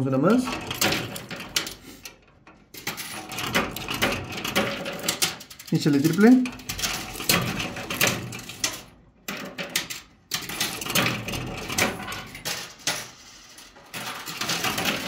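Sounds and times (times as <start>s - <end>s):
machine mechanism clicking: 0.3s - 13.2s
coins clinking in arcade machine: 2.7s - 15.0s.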